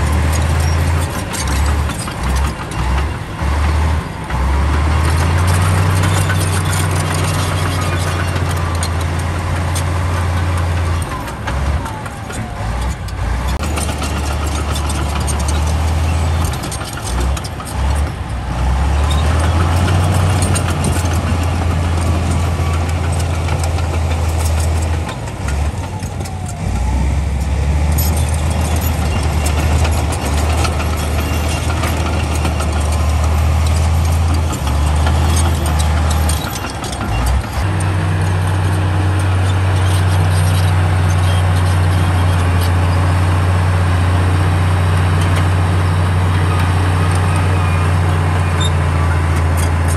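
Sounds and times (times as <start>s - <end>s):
bulldozer diesel engine under load: 0.0s - 49.9s
broad rattling noise: 13.5s - 26.6s.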